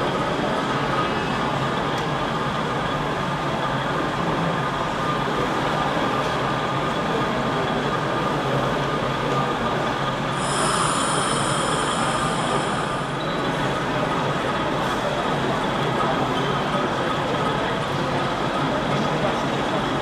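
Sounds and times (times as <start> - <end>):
exhibition hall background noise: 0.0 - 20.0
high-pitched whine: 10.3 - 14.5.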